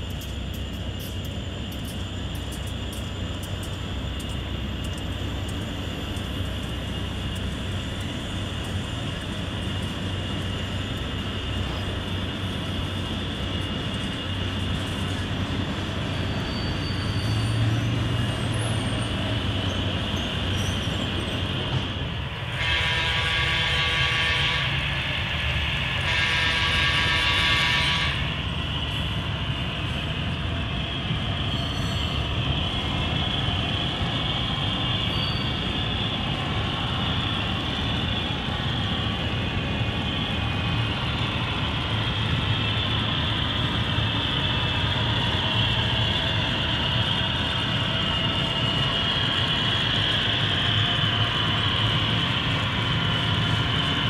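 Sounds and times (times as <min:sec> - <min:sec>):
train horn blasts: 0:22.5 - 0:24.9, 0:26.0 - 0:28.4.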